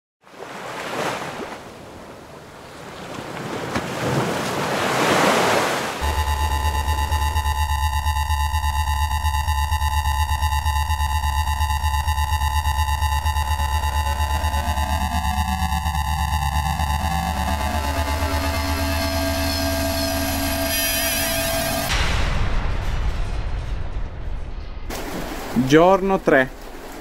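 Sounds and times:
electronic intro music: 0:06.0 - 0:24.9.

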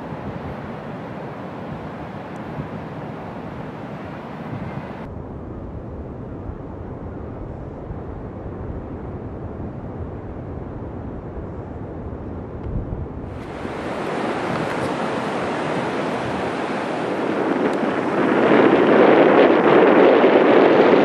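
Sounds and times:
ocean surf breaking: 0:00.0 - 0:05.1, 0:13.2 - 0:21.0
wind on microphone: 0:00.0 - 0:21.0.

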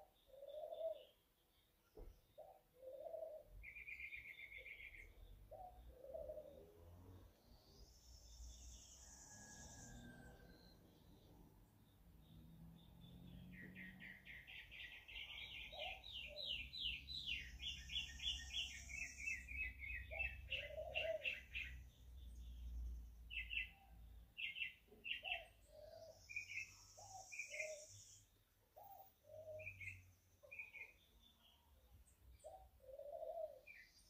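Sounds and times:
birds chirping: 0:07.4 - 0:34.0.

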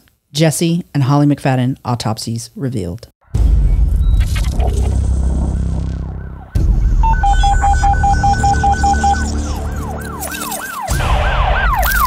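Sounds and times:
low rumble: 0:03.2 - 0:08.6
emergency vehicle siren: 0:04.8 - 0:12.0.

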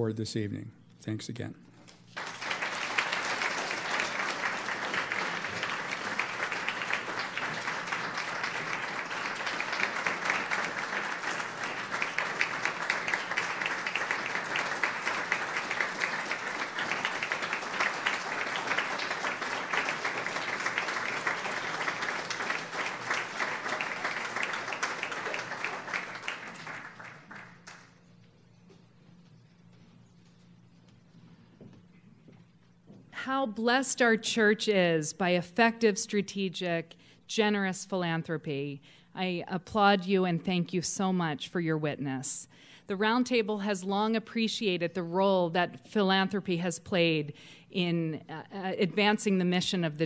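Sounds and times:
audience applauding: 0:02.1 - 0:28.1.

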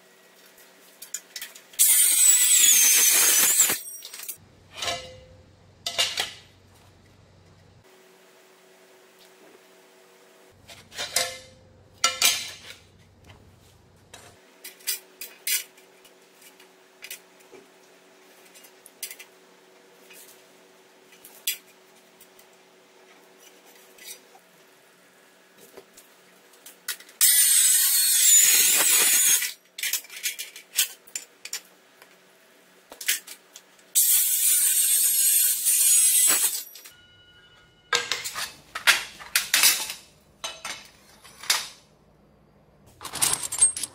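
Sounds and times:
electric cutter cutting metal: 0:01.8 - 0:04.4, 0:27.2 - 0:29.6, 0:34.0 - 0:36.8
metal plates clinking: 0:10.9 - 0:12.8, 0:37.9 - 0:41.8, 0:43.0 - 0:43.9.

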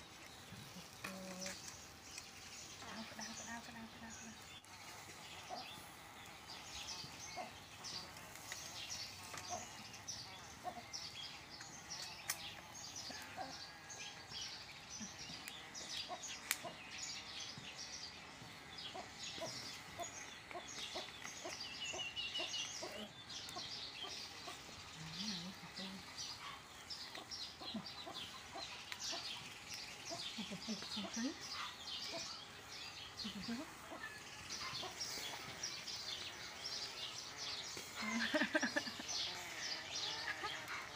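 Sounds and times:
chickens clucking: 0:18.4 - 0:40.9.

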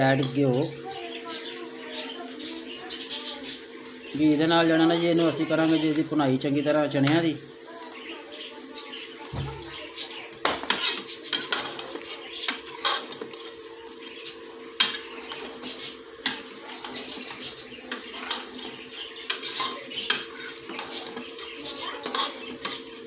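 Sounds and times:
metal ladle scraping a pot: 0:09.7 - 0:23.0.

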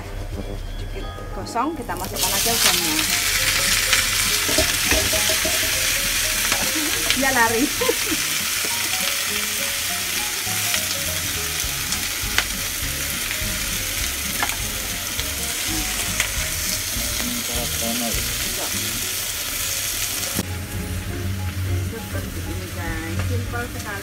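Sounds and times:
shrimp sizzling in butter: 0:02.0 - 0:24.0
wooden spatula knocking pan: 0:02.6 - 0:09.0.

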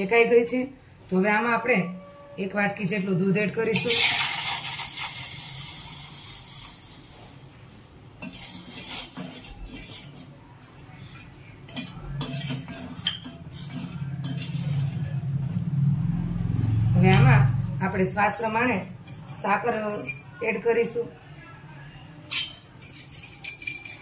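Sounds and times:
milk sizzling in hot pan: 0:03.7 - 0:10.3
steel spoon scraping pan: 0:08.2 - 0:15.2.

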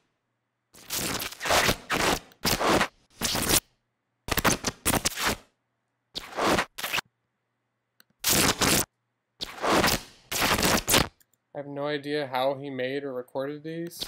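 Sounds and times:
electrical arc zaps: 0:00.8 - 0:03.7, 0:04.3 - 0:05.5, 0:06.2 - 0:07.0, 0:08.2 - 0:11.2.

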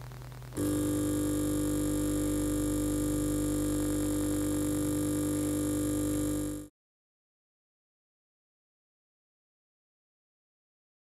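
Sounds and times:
sustained synthesizer chord: 0:00.6 - 0:06.7.

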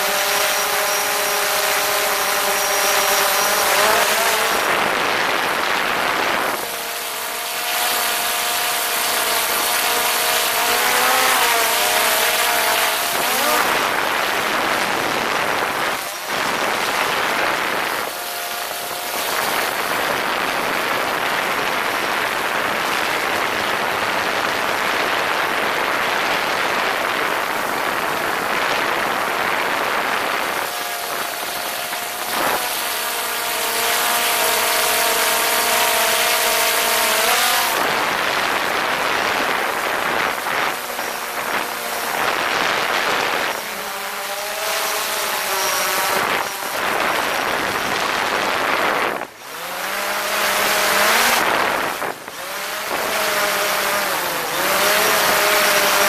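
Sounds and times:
drone motors whining: 0:00.0 - 0:20.0, 0:48.9 - 0:56.0.

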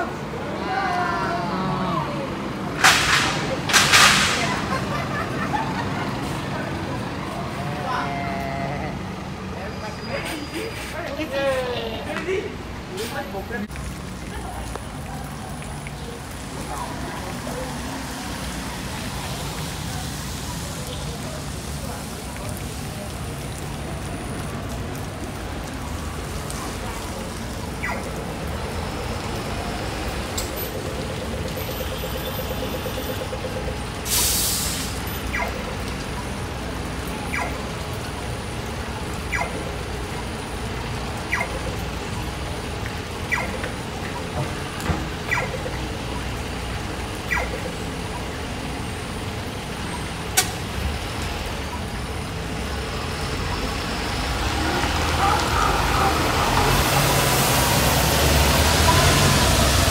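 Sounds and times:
air brake hiss: 0:34.1 - 0:35.0.

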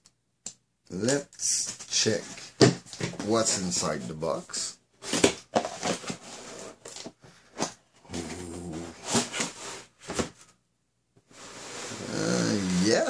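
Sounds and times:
cardboard box scraping and rustling: 0:05.0 - 0:07.1, 0:08.2 - 0:10.3, 0:11.3 - 0:12.9.

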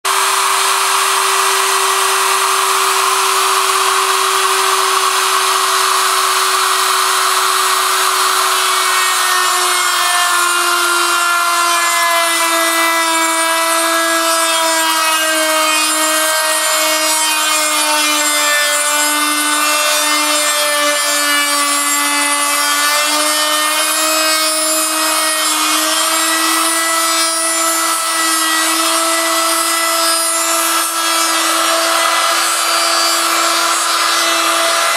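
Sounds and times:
bit cutting wood: 0:00.0 - 0:34.9
rotary tool whining: 0:00.1 - 0:16.4.

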